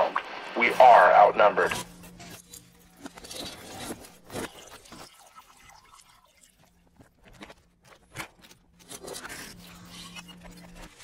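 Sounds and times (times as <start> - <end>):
crackling static with pops: 0.0 - 1.9.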